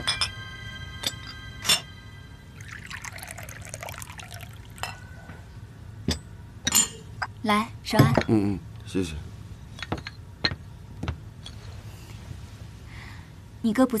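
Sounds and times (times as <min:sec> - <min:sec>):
tea pouring into cup: 0:02.5 - 0:05.2
porcelain cups clinking: 0:02.6 - 0:05.1.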